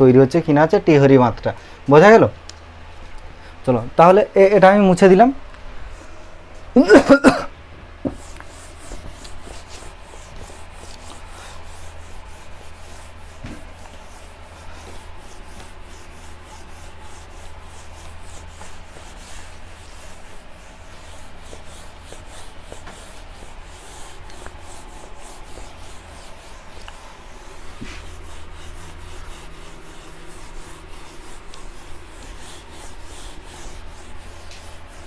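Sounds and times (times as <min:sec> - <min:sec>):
eraser rubbing on whiteboard: 0:08.1 - 0:35.0.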